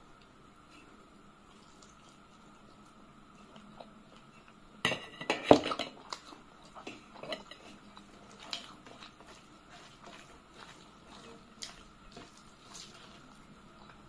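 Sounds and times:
metal dishes clattering: 4.9 - 6.0, 7.2 - 7.7
fingers working rice on metal plate: 6.8 - 13.2.

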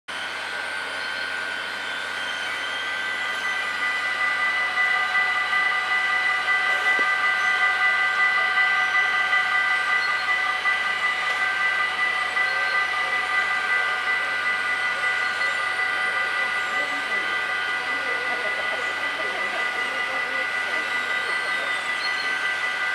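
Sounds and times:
level crossing warning bells: 2.6 - 22.9.

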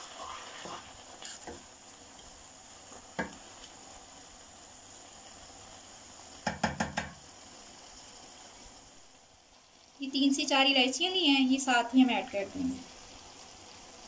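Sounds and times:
spatula stirring carrots: 0.0 - 4.1
faint sizzle: 0.0 - 14.0
spatula knocking against pan: 6.4 - 7.2.

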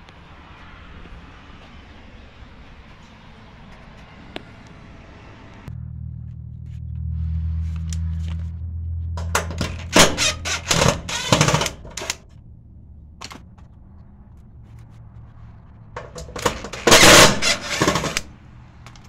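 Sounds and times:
impact driver motor and impacts: 9.2 - 12.2, 16.0 - 18.2.

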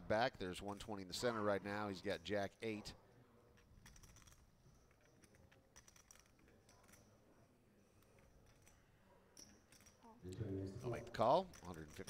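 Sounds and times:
poker chips clicking: 3.6 - 7.1, 11.1 - 12.0.

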